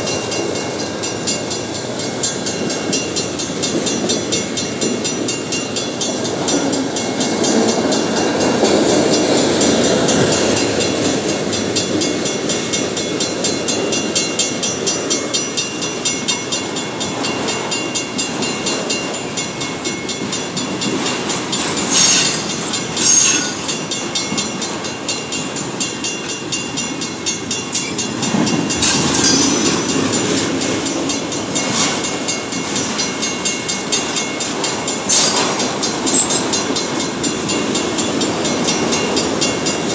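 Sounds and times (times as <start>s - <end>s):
crossing signal bell ringing: 0.0s - 39.9s
train wheels rumbling on rails: 0.0s - 39.9s
sharp metal clanks: 21.6s - 24.2s, 27.7s - 30.3s, 35.0s - 36.5s.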